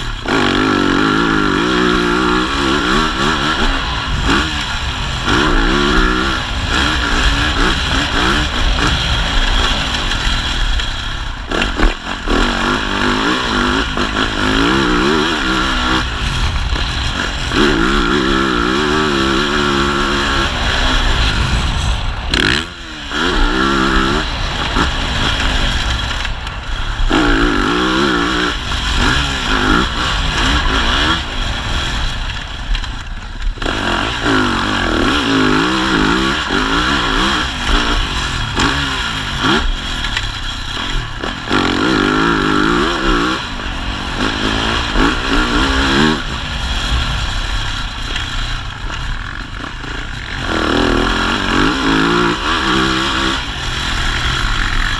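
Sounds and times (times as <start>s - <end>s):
motocross bike engine revving: 0.0s - 54.9s
wind rush: 14.9s - 33.7s.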